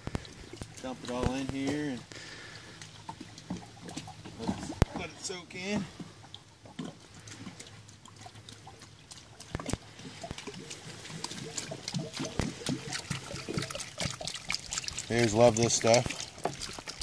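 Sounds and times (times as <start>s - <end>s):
grease pouring with splats and gurgles: 0.0s - 17.0s.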